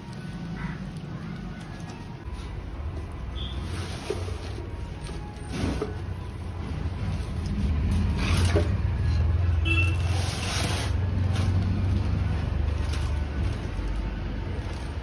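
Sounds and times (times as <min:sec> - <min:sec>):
plastic packaging rustling: 0:09.9 - 0:15.0.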